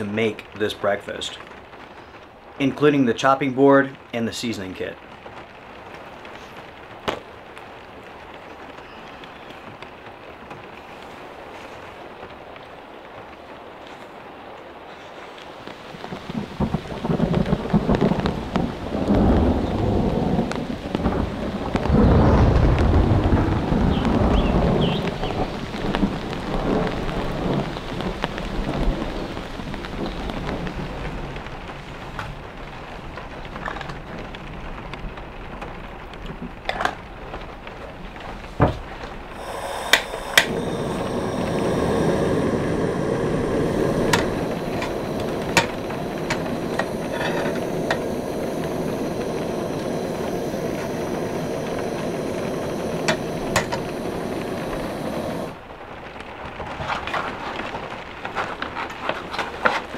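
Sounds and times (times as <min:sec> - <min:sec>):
rain: 0:00.0 - 0:59.9
distant thunder rumbling: 0:15.8 - 0:31.5, 0:39.2 - 0:56.1
gas burner hissing: 0:15.9 - 0:28.4, 0:39.3 - 0:55.8.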